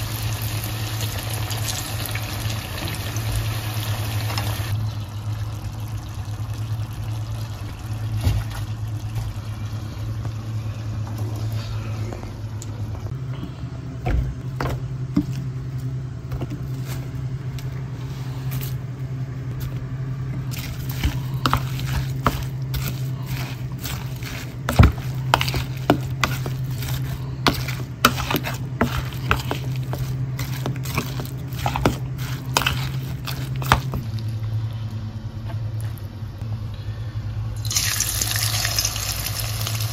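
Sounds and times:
steady low hum: 0.0s - 38.4s
spoon scraping a plastic bowl: 20.5s - 34.0s.

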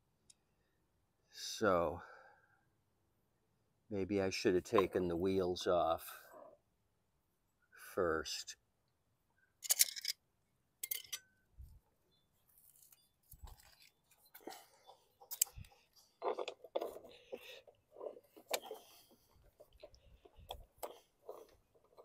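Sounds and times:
socket wrench clicking and clinking: 9.6s - 10.2s, 10.8s - 11.3s.

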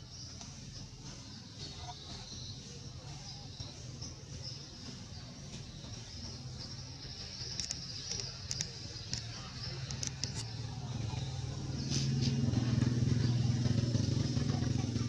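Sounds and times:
low engine hum: 0.0s - 15.0s
faint clicks: 7.4s - 10.6s.

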